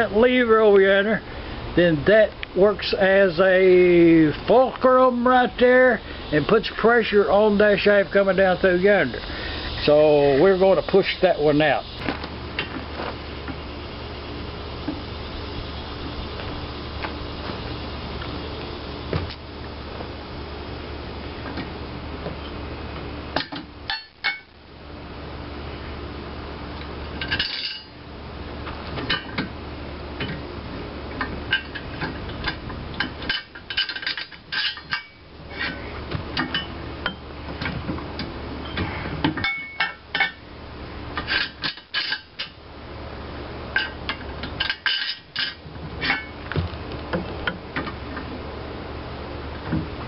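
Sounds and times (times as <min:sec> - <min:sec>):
steady low hum: 0:00.0 - 0:50.0.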